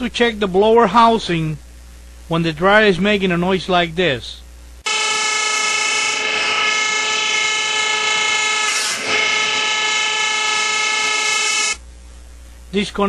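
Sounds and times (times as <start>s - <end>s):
clothes dryer droning: 4.8s - 11.8s.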